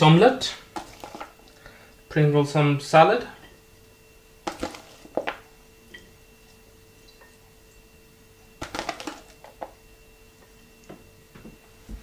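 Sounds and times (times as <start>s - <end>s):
faint steady hum: 0.0s - 12.0s
salad pieces clicking on plate: 8.6s - 9.7s.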